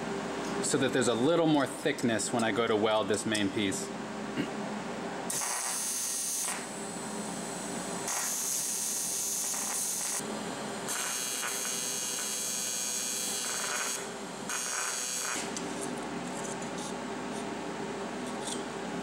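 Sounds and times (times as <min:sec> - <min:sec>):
welding arc buzzing: 0:05.3 - 0:16.6.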